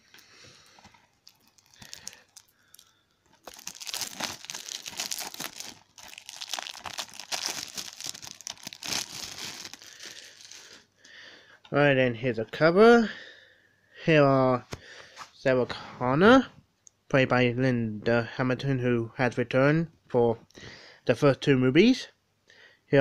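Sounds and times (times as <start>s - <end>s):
plastic film crinkling: 0.1s - 10.9s.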